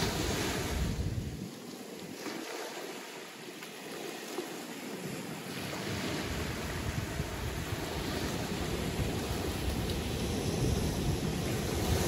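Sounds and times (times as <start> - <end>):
wind buffeting microphone: 0.0 - 1.6, 4.8 - 12.0
waves washing onto shore: 0.0 - 12.0.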